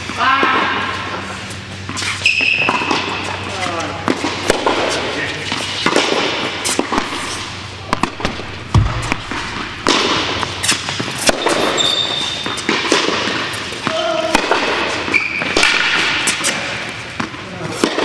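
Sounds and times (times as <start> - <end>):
tennis balls struck and bouncing: 4.0 - 16.5, 17.1 - 18.0
high squeak: 11.7 - 12.5.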